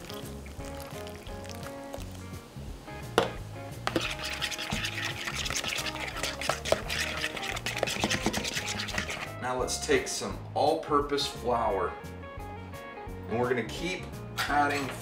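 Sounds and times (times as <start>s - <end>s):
spoon stirring batter in bowl: 0.0s - 2.3s, 3.2s - 9.4s
background music: 0.0s - 15.0s.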